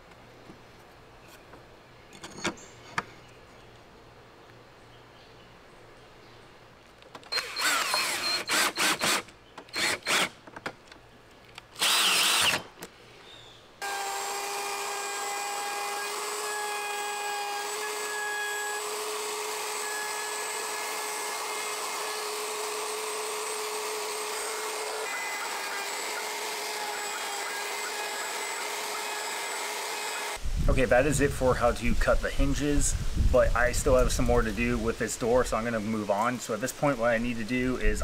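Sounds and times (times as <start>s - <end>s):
cordless drill driving screws: 7.3s - 10.3s, 11.8s - 12.7s, 13.8s - 30.4s
router cutting wood: 7.3s - 10.3s, 11.8s - 12.6s, 13.8s - 30.4s.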